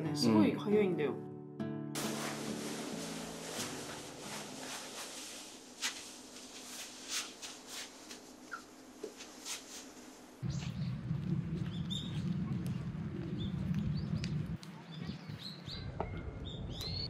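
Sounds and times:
music track: 0:00.0 - 0:05.2
fabric rustling and swishing: 0:02.0 - 0:10.4
faint hiss: 0:02.0 - 0:10.8.

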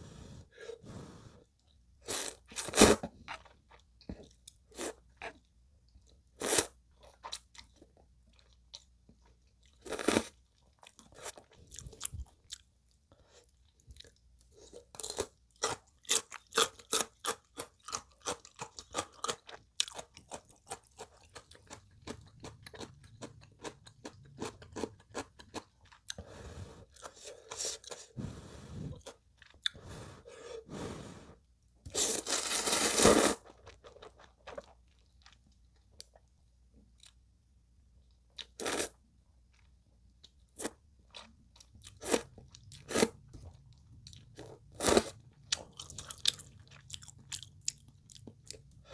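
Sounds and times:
slurping noodles: 0:31.9 - 0:33.5.

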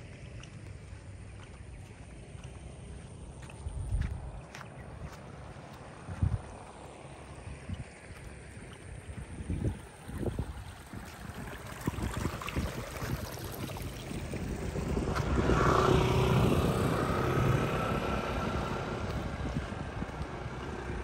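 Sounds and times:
vehicle engine passing by: 0:10.8 - 0:21.0.

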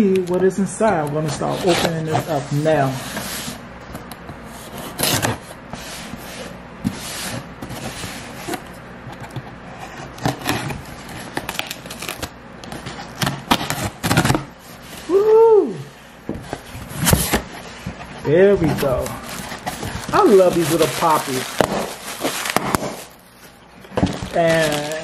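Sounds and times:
cardboard rustling: 0:00.0 - 0:15.4, 0:16.3 - 0:25.0
tape ripping: 0:11.3 - 0:12.3, 0:18.8 - 0:23.2, 0:24.0 - 0:25.0.

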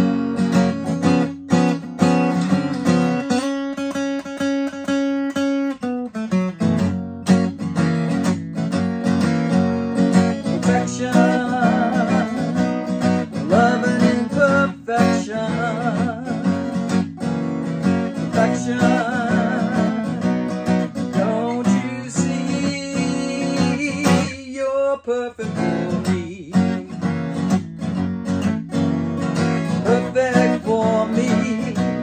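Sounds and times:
acoustic guitar strumming: 0:00.0 - 0:32.0
woman singing: 0:10.5 - 0:16.6, 0:18.3 - 0:20.4, 0:21.2 - 0:26.9.

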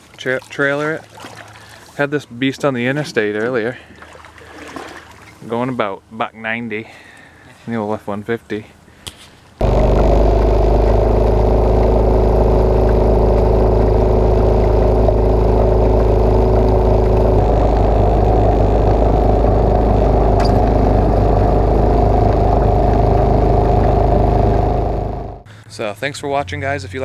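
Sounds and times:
small boat motor running: 0:09.6 - 0:25.5.

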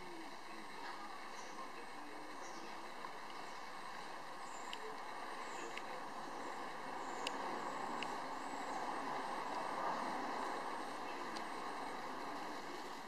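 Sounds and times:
outdoor background noise: 0:00.0 - 0:13.0
light ticks: 0:02.9 - 0:08.3, 0:11.2 - 0:11.7.

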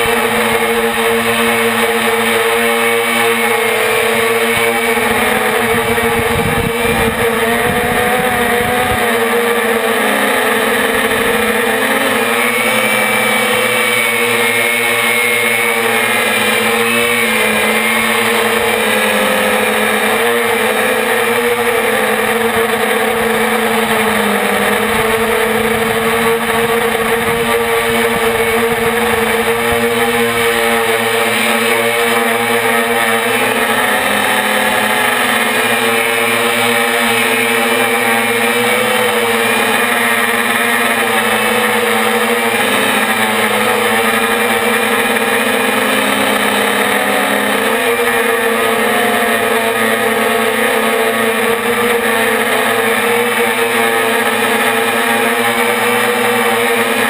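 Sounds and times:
drone motors buzzing: 0:00.0 - 0:57.0
wind rumble on microphone: 0:05.5 - 0:09.3.

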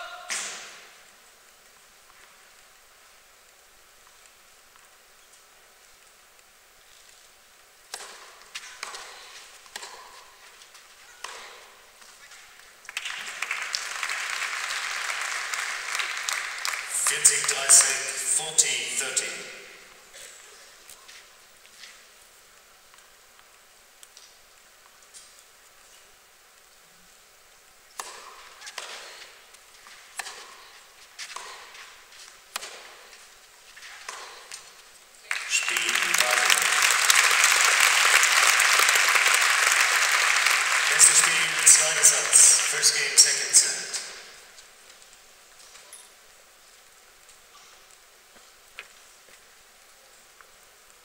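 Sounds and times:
tennis balls hit by racquets: 0:00.3 - 0:00.9, 0:07.9 - 0:12.2, 0:27.9 - 0:34.8
crowd applauding: 0:12.8 - 0:19.5, 0:35.2 - 0:44.3.

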